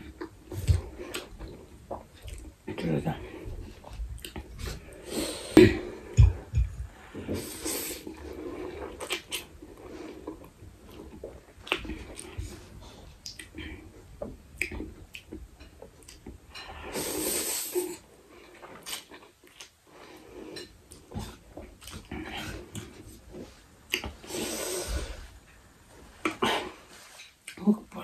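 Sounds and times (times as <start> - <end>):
person slurping noodles: 4.6 - 10.3, 16.7 - 18.0, 24.2 - 25.2
wet mouth sounds: 13.2 - 13.7.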